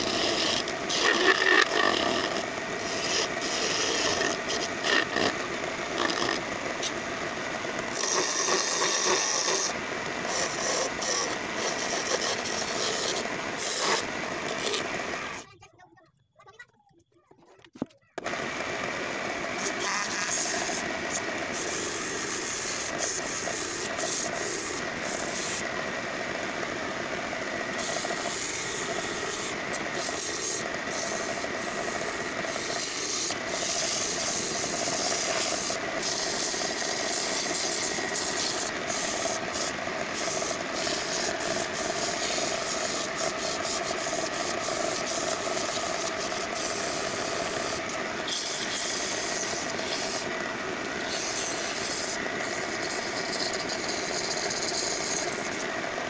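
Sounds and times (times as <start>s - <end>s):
lathe motor hum: 0.0s - 15.4s, 18.2s - 56.0s
sandpaper sanding hiss: 7.9s - 14.8s, 21.5s - 25.6s, 27.8s - 50.3s, 51.0s - 55.6s.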